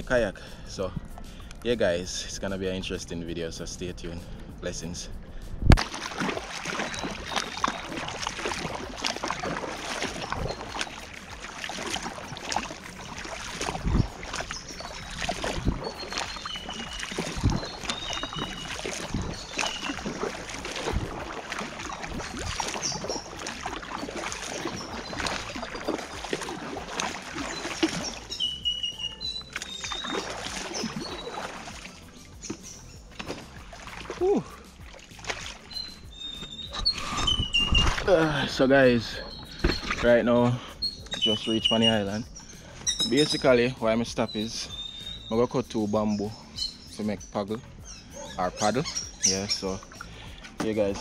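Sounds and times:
paddle splashing in water: 5.7s - 40.2s
paddle knocking against raft: 5.8s - 28.6s, 29.3s - 38.1s.

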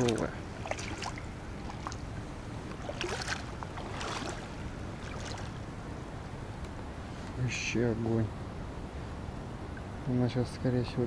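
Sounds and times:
water sloshing and splashing: 0.0s - 5.9s.

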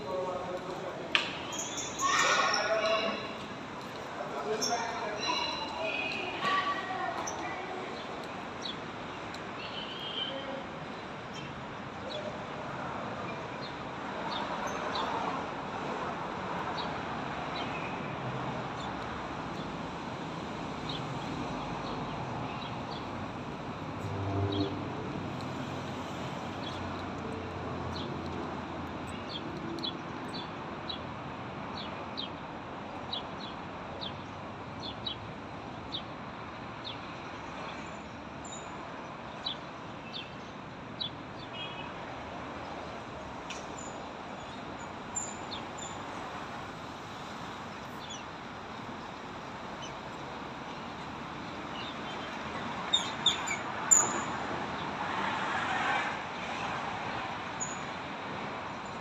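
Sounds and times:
outdoor street hum: 0.0s - 59.0s
small birds chirping: 47.7s - 48.4s, 49.8s - 54.3s.

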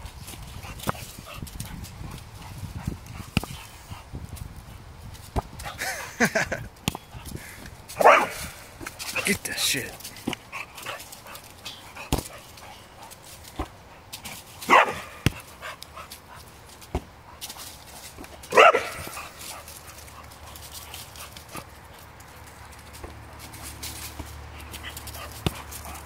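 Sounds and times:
dog barking: 8.0s - 8.4s, 14.7s - 15.2s, 18.5s - 19.1s.

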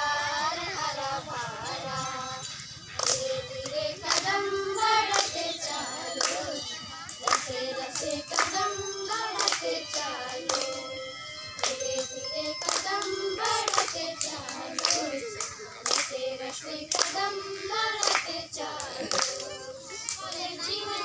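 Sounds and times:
girls singing in unison: 0.0s - 21.0s
sharp hand claps: 2.9s - 4.4s, 5.1s - 10.9s, 11.6s - 16.2s, 16.9s - 17.2s, 18.0s - 20.4s.

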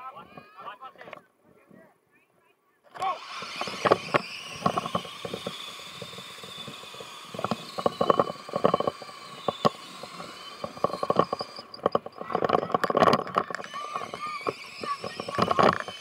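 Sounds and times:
electric motor whining: 3.0s - 16.0s
bike rattling on rough track: 3.4s - 16.0s.

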